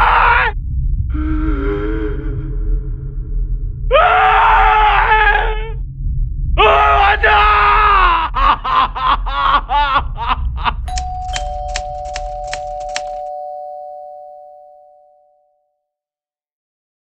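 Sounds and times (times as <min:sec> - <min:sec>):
man screaming for help: 0:06.6 - 0:08.3
typewriter key clicks: 0:10.9 - 0:13.3
ringing bell-like tones: 0:10.9 - 0:15.6.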